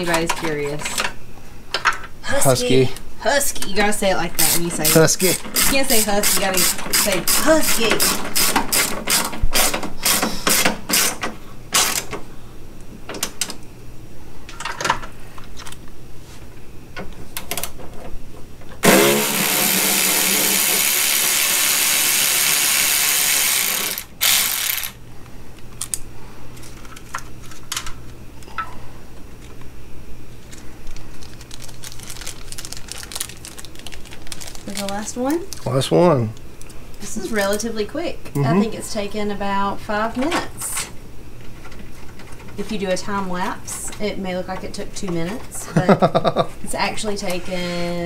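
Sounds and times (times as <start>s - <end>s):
cordless ratchet motor whine: 4.4s - 11.2s, 18.8s - 25.0s
ratchet clicking: 18.9s - 25.0s.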